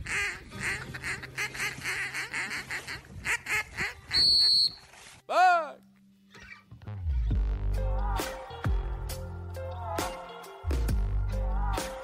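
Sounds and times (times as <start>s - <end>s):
ducks quacking: 0.0s - 4.5s
high-pitched whistle blast: 4.1s - 4.9s.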